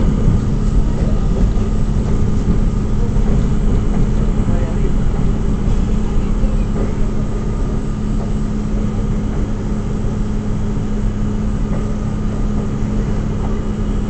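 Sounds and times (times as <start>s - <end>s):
constant low hum: 0.0s - 14.0s
subway car rumble: 0.0s - 14.0s.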